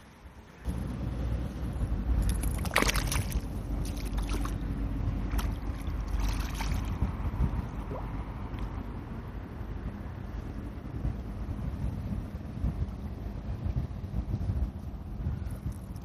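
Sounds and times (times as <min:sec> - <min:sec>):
wind rumble on microphone: 0:00.0 - 0:16.0
fish splashing in water: 0:02.2 - 0:04.6, 0:05.2 - 0:07.0.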